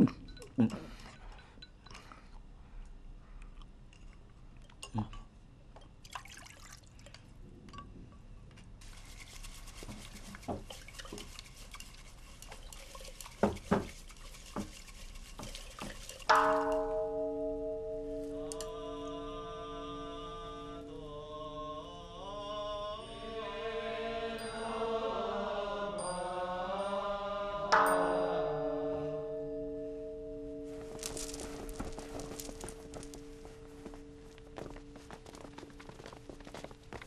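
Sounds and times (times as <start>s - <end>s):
liquid poured into wooden bowls: 3.4s - 17.0s, 30.5s - 37.0s
steady splashing hiss: 8.8s - 17.0s.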